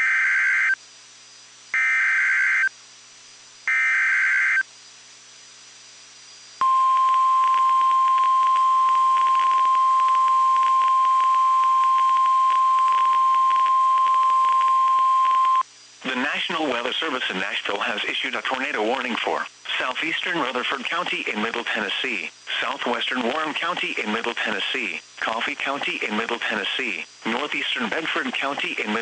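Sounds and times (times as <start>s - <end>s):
steady alarm tone: 3.7s - 4.6s, 6.6s - 15.6s.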